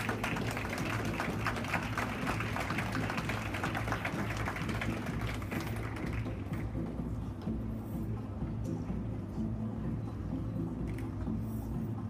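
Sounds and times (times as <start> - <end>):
audience clapping: 0.0 - 6.6
background music with bass: 0.0 - 12.0.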